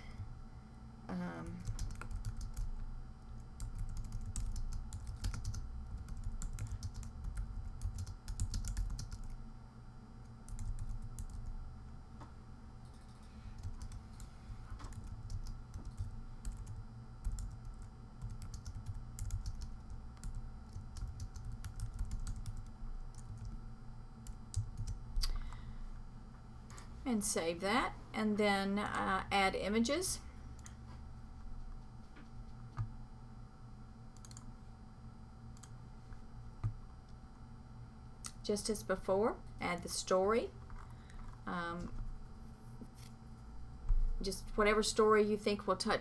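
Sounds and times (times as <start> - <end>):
typing on keyboard: 1.6 - 2.7, 3.6 - 9.4, 10.5 - 11.5, 12.9 - 14.0, 14.8 - 23.6.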